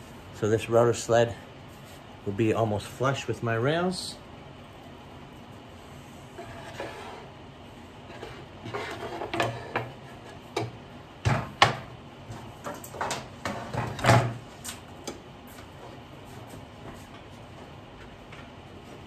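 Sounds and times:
wood knocking on a workbench: 10.6 - 11.9.

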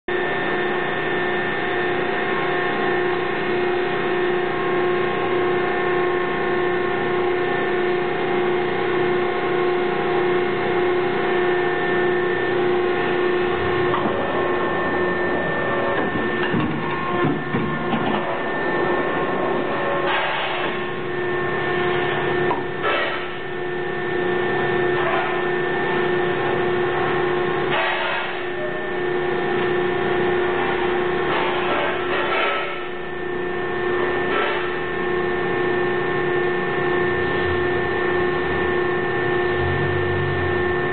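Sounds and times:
hydraulic press humming: 0.1 - 40.9.

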